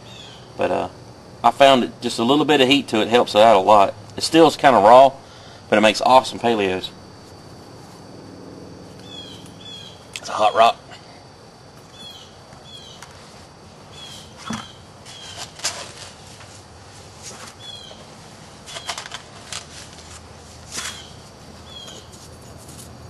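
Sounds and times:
small bird chirping: 0.0 - 0.5, 8.9 - 10.7, 11.9 - 13.1, 13.9 - 15.5, 17.6 - 18.0, 20.8 - 22.2.

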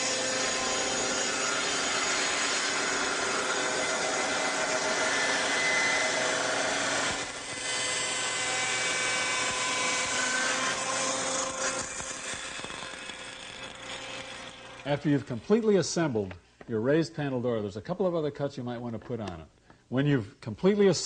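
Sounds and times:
table saw cutting wood: 0.0 - 16.4.

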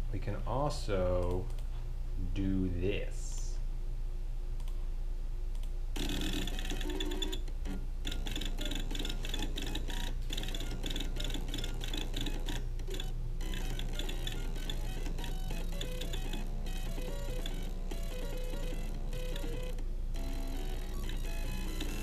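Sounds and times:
steady low hum: 0.0 - 22.0
stepper motors playing a tune: 6.0 - 22.0.

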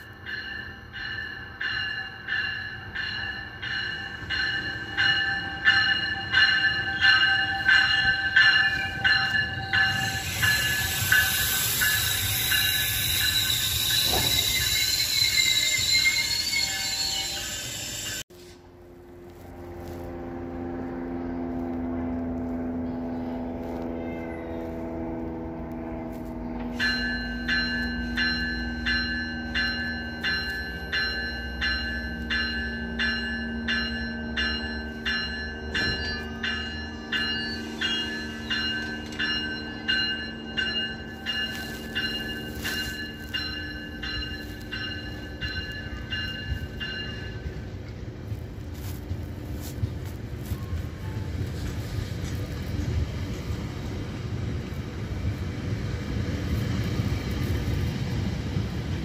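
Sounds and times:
locomotive bell ringing: 0.0 - 18.2, 26.2 - 53.6
diesel locomotive engine running: 0.0 - 59.0.

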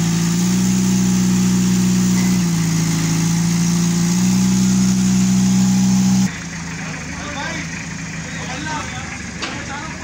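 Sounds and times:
low motor drone: 0.0 - 6.3.

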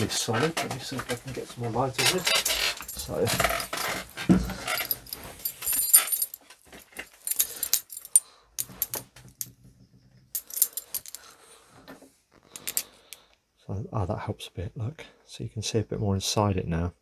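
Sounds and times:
metal model engine clattering: 2.0 - 6.3.

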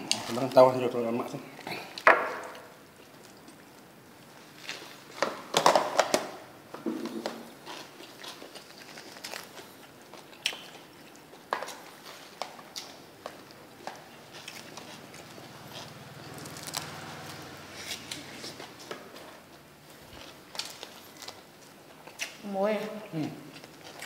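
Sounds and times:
crackly chewing clicks: 7.6 - 22.4, 23.5 - 24.0.

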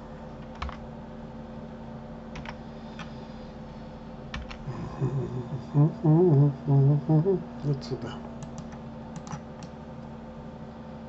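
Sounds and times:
low steady hum: 0.0 - 11.0
computer keyboard keystrokes: 2.4 - 3.1, 8.4 - 9.7.

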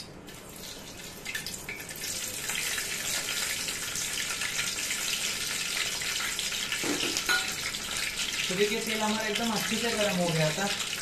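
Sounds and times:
chillies sizzling in oil: 0.6 - 11.0.

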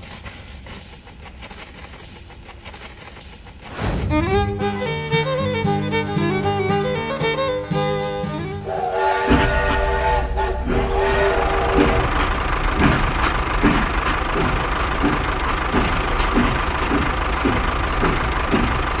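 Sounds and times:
toy train clicks: 0.0 - 3.6
electronic whistle tones: 8.6 - 12.4.

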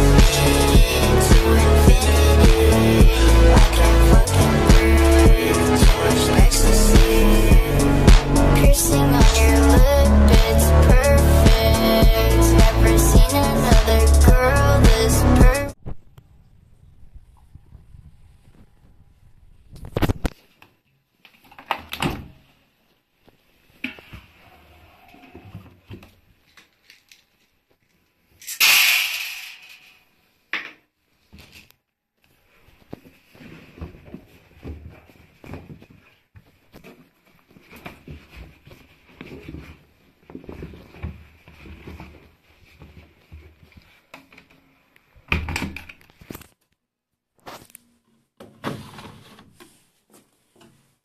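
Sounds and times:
beads rattling into steel drum: 28.4 - 30.0.

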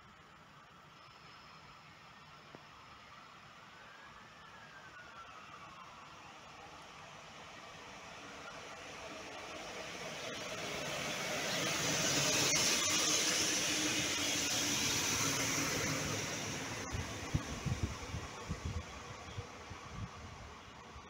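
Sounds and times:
diesel railcar engine: 5.8 - 21.0
wind buffeting microphone: 16.8 - 20.6.

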